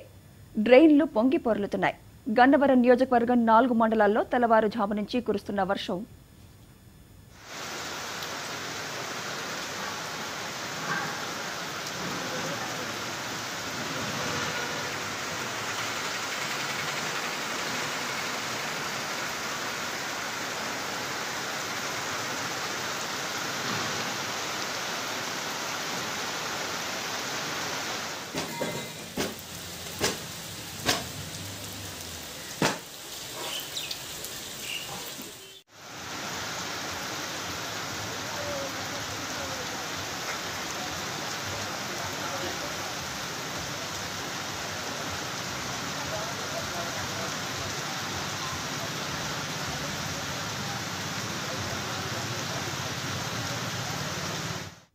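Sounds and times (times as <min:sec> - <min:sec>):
heavy rain hissing: 0:07.3 - 0:54.9
sharp knocks: 0:32.6 - 0:32.9.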